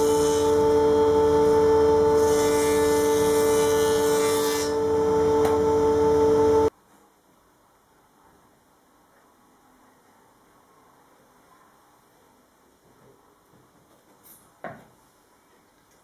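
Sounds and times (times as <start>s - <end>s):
planer cutting wood: 0.0s - 6.7s
thickness planer whining: 0.0s - 6.7s.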